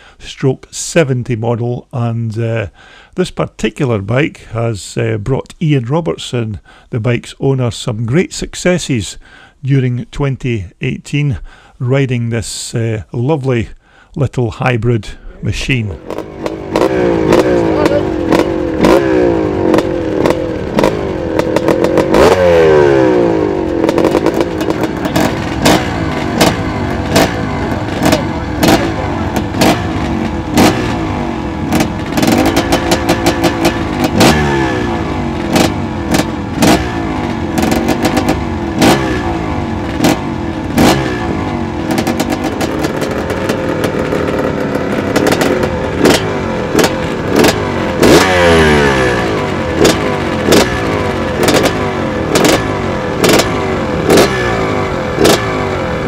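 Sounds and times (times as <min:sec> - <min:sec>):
exhaust cracks: 0:15.0 - 0:56.0
dirt bike engine revving: 0:15.8 - 0:56.0.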